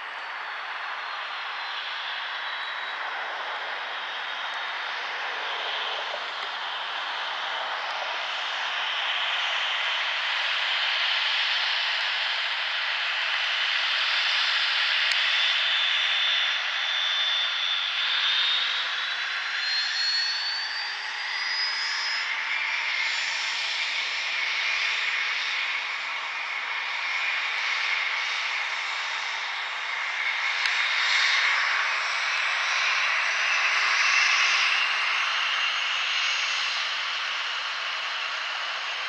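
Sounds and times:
high whine rising in pitch: 0:15.6 - 0:39.0.

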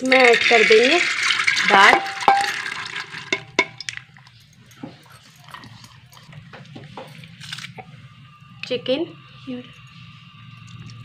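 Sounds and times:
lentils splashing into water: 0:00.1 - 0:04.0.

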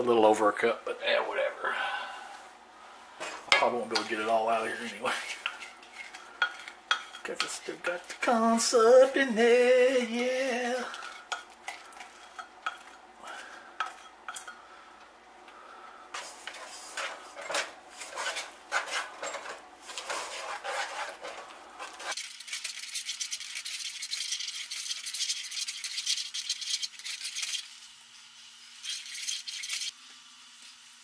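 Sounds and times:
wooden spoon scraping metal pot: 0:03.2 - 0:08.4, 0:10.8 - 0:14.6, 0:16.2 - 0:27.6.

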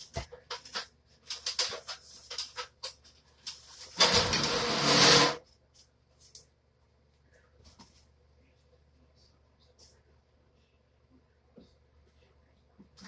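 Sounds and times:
loud rustling scrape: 0:03.7 - 0:05.4.

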